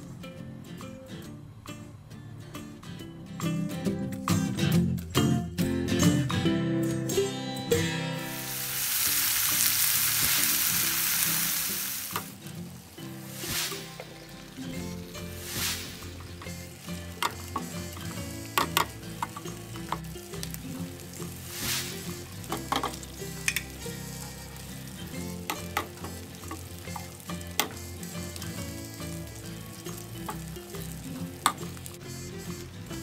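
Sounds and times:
faint music: 0.0 - 33.0
garlic sizzling in a pan: 8.1 - 33.0.

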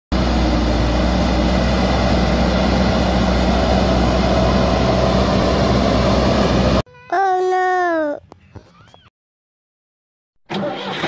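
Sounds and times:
heavy engine droning: 0.1 - 6.8.

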